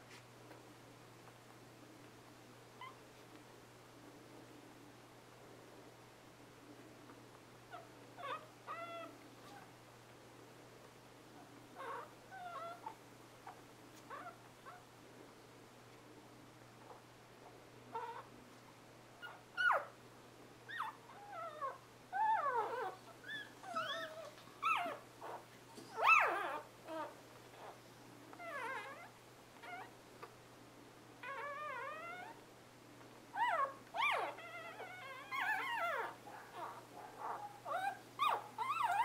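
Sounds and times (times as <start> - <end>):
puppies crying: 20.7 - 27.8, 33.4 - 39.0.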